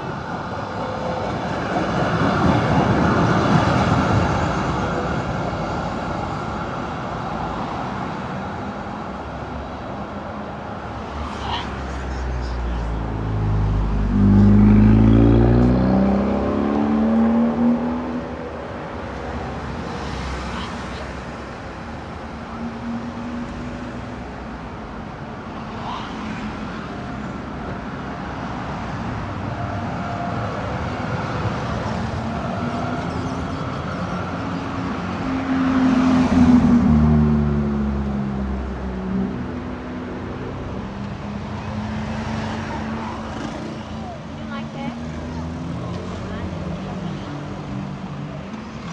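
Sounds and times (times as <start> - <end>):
cars passing: 0.0 - 48.9
trams passing: 0.0 - 48.9
engine rising in pitch: 13.4 - 18.2.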